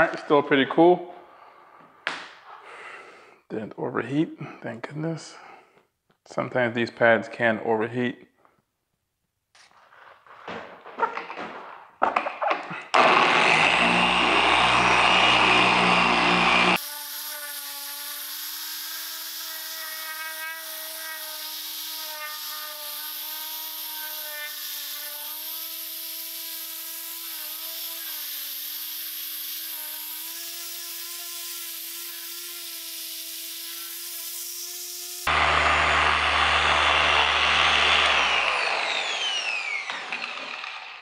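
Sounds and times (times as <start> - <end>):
polisher motor humming: 12.9 - 41.0.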